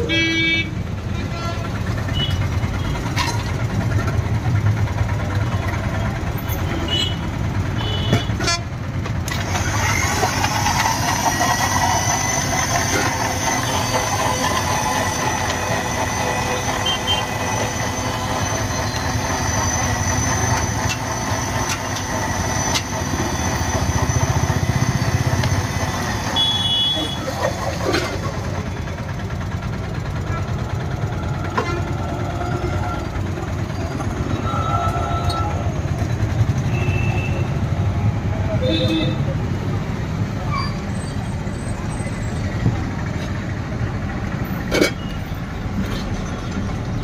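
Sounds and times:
street traffic: 0:00.0 - 0:47.0
blender whirring: 0:09.3 - 0:28.0.

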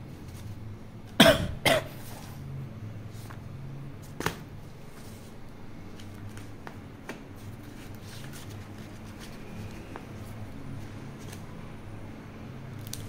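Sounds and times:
paper rustling: 0:04.1 - 0:11.5.

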